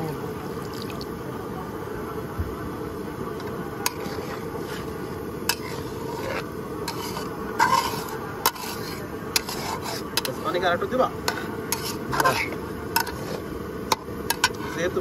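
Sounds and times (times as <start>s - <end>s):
metal spatula scraping a pan: 3.8s - 15.0s.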